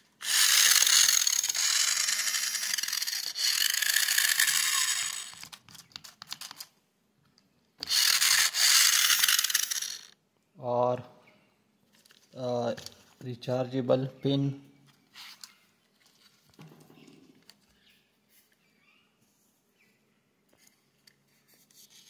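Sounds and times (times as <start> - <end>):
toy car motor whirring: 0.0 - 5.6, 7.8 - 10.2.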